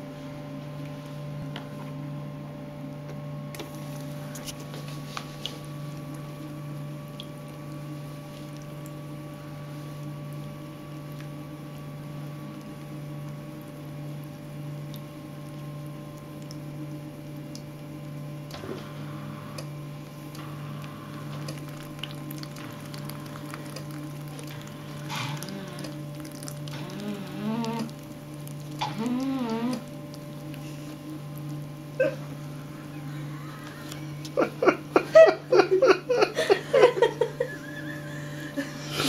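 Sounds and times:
low electrical hum: 0.0 - 39.0
liquid squishing: 3.6 - 18.9, 19.7 - 34.6.

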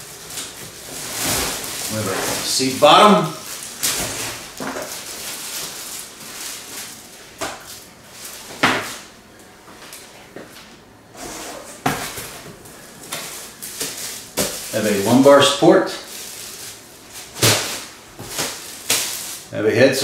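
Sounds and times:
plastic and foam rustling: 0.0 - 9.1, 9.7 - 19.5.

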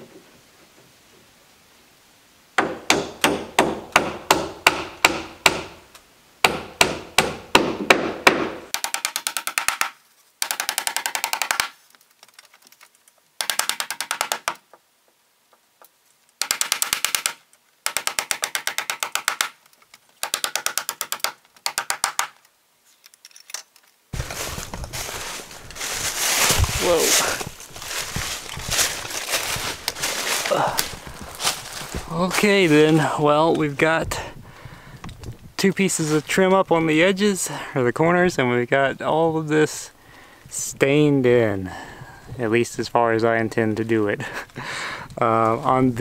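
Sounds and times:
hammer driving nails into wood: 2.6 - 5.8, 6.4 - 11.8, 13.4 - 14.6, 16.4 - 19.6, 20.2 - 22.4.

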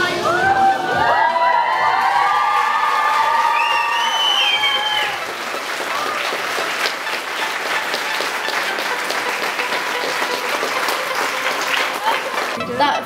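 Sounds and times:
crowd applauding: 0.9 - 12.8.

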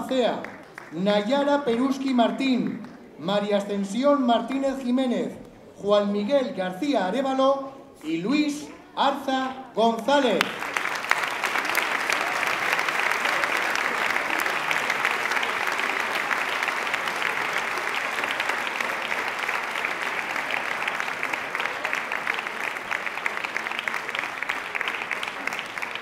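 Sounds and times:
audience applauding: 0.0 - 1.4, 10.4 - 26.0.

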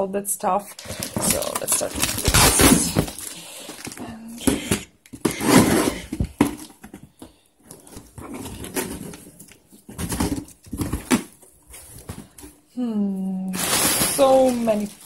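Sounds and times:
cardboard flaps scraping and rustling: 7.7 - 12.4.

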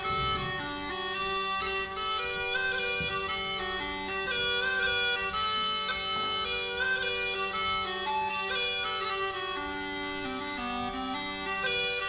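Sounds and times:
bagpipe drone: 0.0 - 12.0
smallpipes melody: 0.0 - 12.0.

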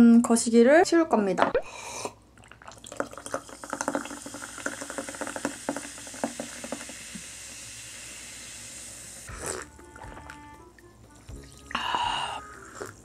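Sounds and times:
drink pouring into a glass: 2.4 - 7.5
bubbles fizzing: 2.4 - 10.3.

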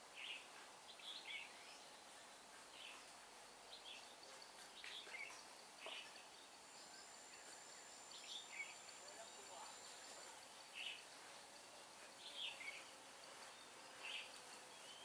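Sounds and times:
soft background hiss: 0.0 - 15.0.

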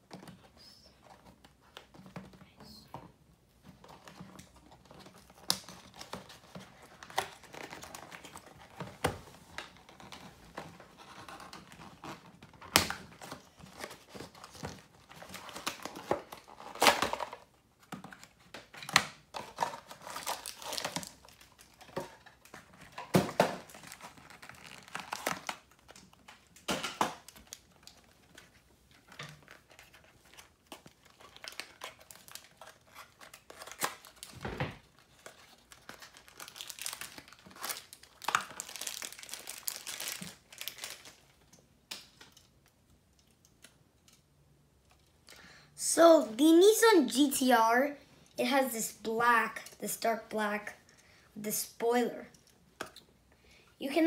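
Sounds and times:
cardboard rustling and tearing: 3.9 - 17.5, 19.4 - 26.5, 27.3 - 41.2.

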